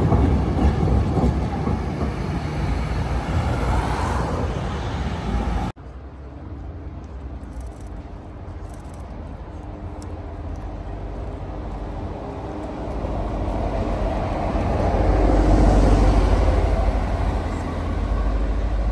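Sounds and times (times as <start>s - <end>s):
vehicle passing by: 11.2s - 18.9s.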